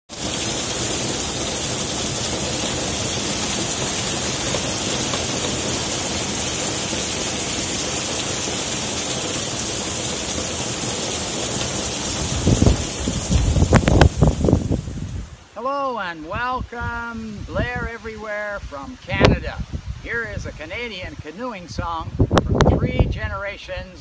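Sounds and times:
heavy rain pouring: 0.1s - 15.6s.

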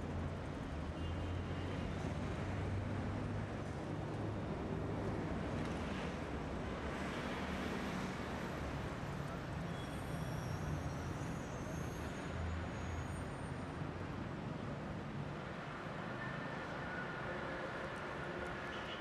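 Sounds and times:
passing cars and buses: 0.0s - 19.0s
faint high squeals: 9.7s - 13.4s.

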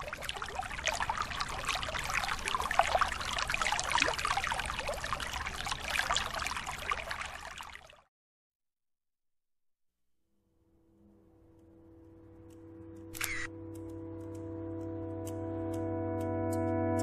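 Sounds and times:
creek water babbling: 0.0s - 8.0s.

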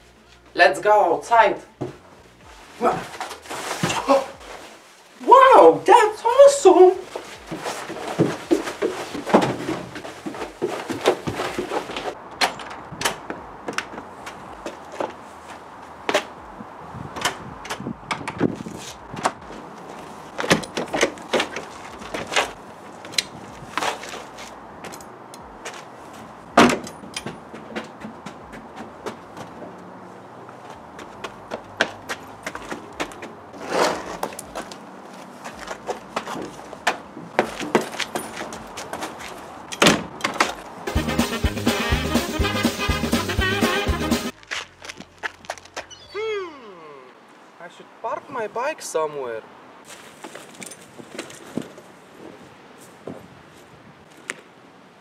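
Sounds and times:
footsteps: 1.7s - 5.3s, 6.4s - 39.7s, 40.4s - 46.5s.

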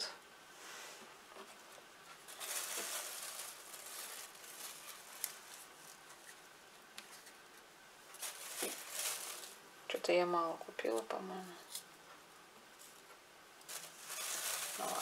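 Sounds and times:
dry onion skins rustling: 1.4s - 12.1s, 12.8s - 15.0s
plastic bag crinkling: 2.2s - 6.4s, 8.1s - 9.6s, 13.7s - 15.0s.

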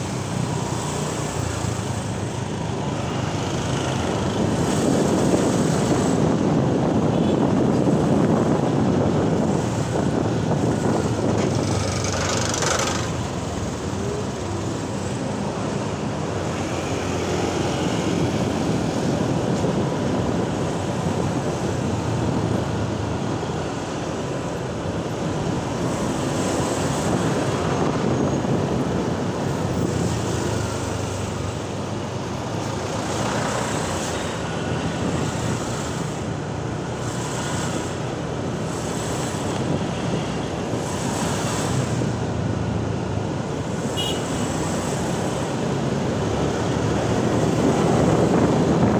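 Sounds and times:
cars and buses passing: 0.0s - 48.9s
road rumble: 0.0s - 48.9s
scooter engine: 10.9s - 19.1s.

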